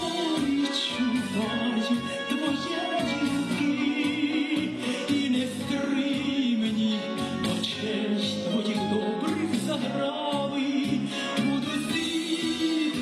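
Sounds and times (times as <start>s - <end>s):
instrumental accompaniment: 0.0s - 13.0s
woman singing into a microphone: 0.0s - 13.0s.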